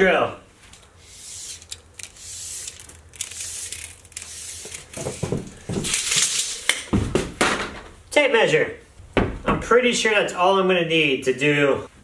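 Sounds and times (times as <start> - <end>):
rustling and knocking of tools: 0.6 - 8.0.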